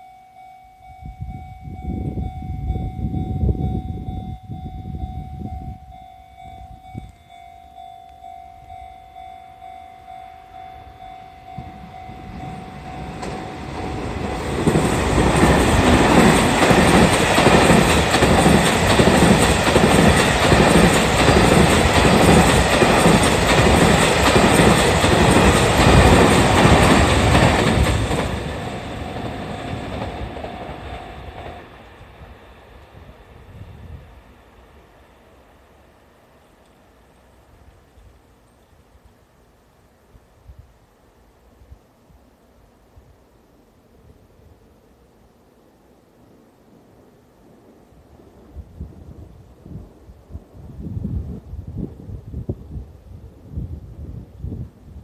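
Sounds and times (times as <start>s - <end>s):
level crossing bell ringing: 0.0s - 14.2s
train wheels clattering over rail joints: 12.5s - 32.0s.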